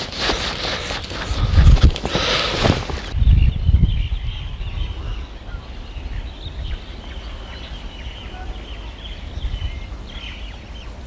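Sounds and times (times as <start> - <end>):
wind rumble on microphone: 0.7 - 11.0
faint bird chirps: 3.3 - 11.0.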